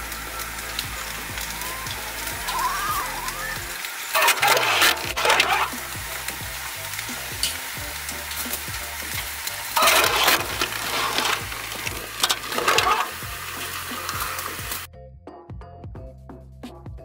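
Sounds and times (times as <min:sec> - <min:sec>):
pallet jack rattling over wooden floor: 0:09.8 - 0:13.2.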